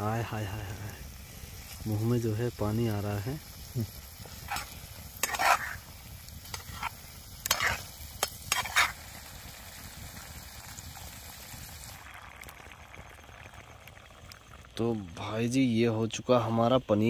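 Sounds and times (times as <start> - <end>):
food sizzling: 0.0 - 17.0
spoon scraping a pot: 4.4 - 5.9, 6.5 - 9.0.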